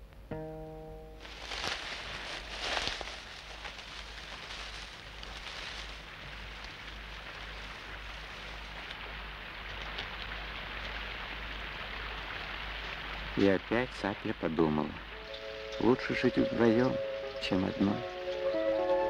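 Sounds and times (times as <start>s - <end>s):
steady rain falling: 1.1s - 19.0s.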